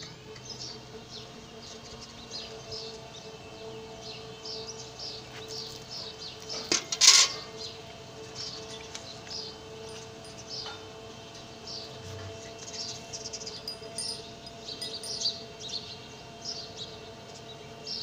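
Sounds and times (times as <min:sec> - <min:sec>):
small birds chirping: 0:00.2 - 0:06.8, 0:07.5 - 0:18.0.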